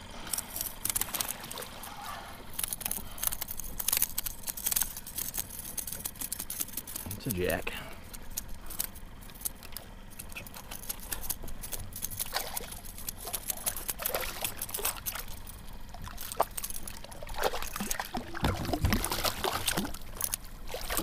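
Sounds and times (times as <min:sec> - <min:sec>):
fish splashing in water: 0:00.1 - 0:04.8, 0:12.1 - 0:21.0.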